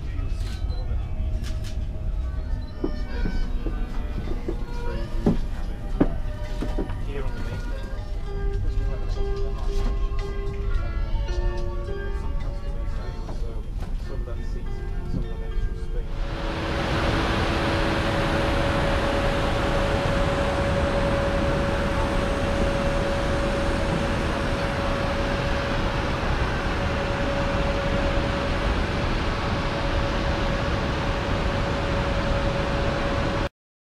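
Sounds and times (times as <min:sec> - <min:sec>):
loud machine rush with whine: 0:16.1 - 0:33.5.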